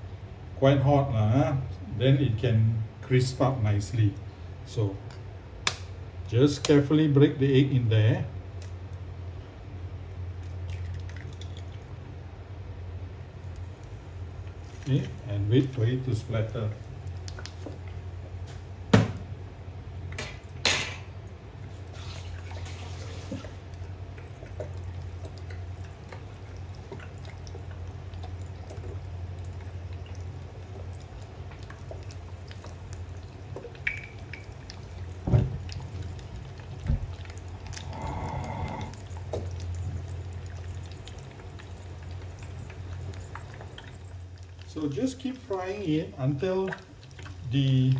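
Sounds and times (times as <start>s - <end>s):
oil popping: 10.4s - 12.0s, 13.2s - 47.9s
egg sizzling in oil: 13.1s - 47.9s.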